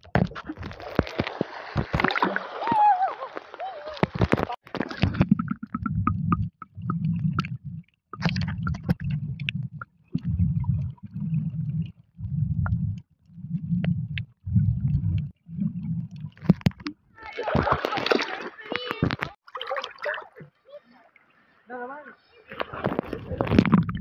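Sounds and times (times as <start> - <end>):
pulsing underwater rumble: 4.1 - 17.2, 22.8 - 24.0.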